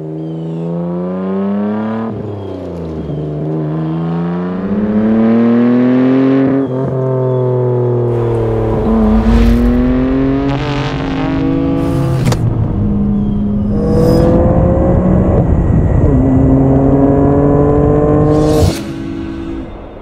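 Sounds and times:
car engine accelerating hard: 0.2 - 19.1.

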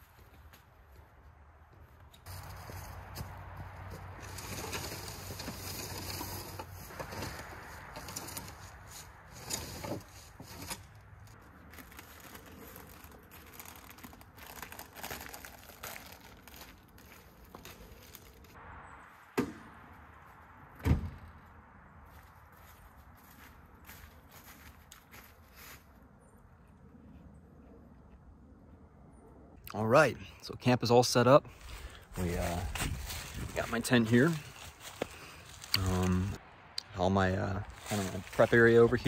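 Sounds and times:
camp gear rustling: 2.0 - 18.6, 31.5 - 36.4, 37.6 - 39.0.

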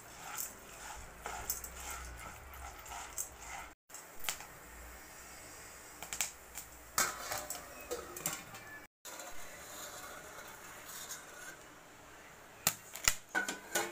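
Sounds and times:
popcorn popping: 0.0 - 4.5, 6.0 - 8.6.

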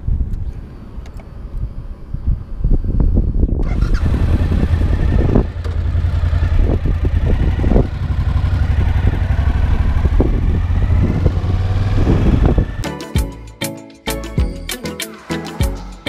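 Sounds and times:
wind noise on microphone: 0.0 - 12.8
motorcycle engine accelerating: 1.4 - 12.9.

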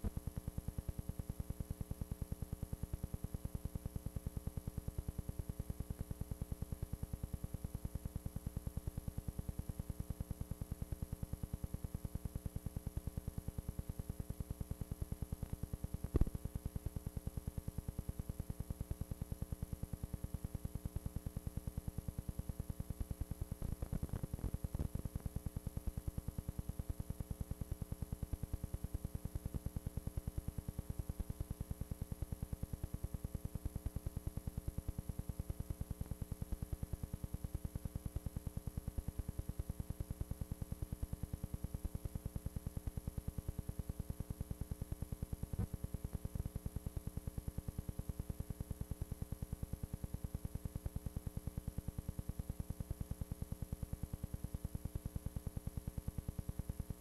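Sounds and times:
electrical hum and buzz: 0.0 - 56.0.

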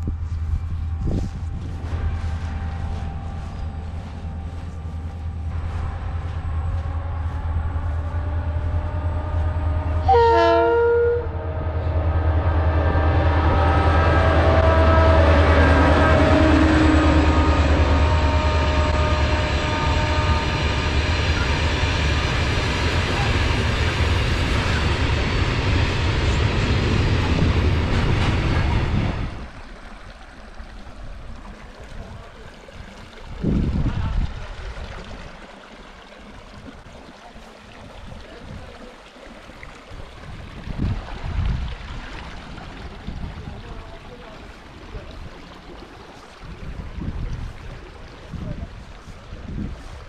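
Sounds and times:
diesel locomotive engine rumble: 0.0 - 35.2
shallow stream rushing: 0.0 - 50.0
locomotive horn blast: 0.6 - 22.6.

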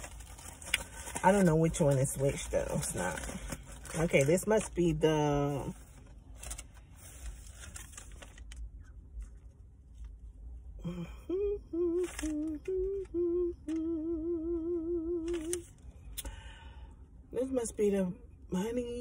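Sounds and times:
paper and foil wrapper rustling: 0.0 - 10.2, 11.8 - 13.8, 15.2 - 15.8
woman humming: 10.8 - 15.6.

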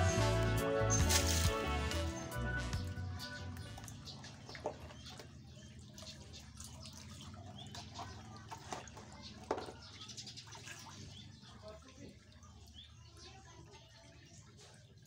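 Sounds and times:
sharp splashes: 0.0 - 2.8
water splashing and dripping: 0.0 - 15.0.

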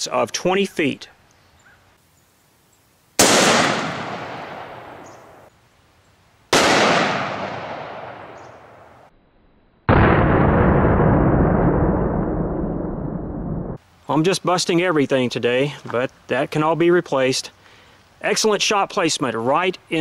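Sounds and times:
rifle shots: 3.2 - 5.4, 6.5 - 8.8.

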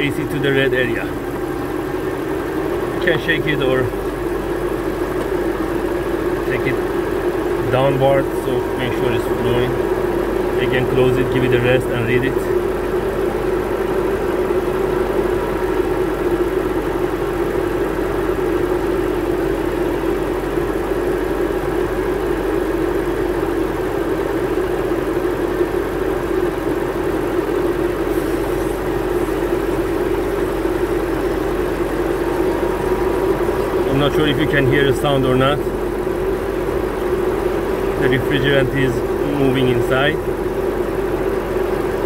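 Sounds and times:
car engine idling: 0.0 - 42.0.

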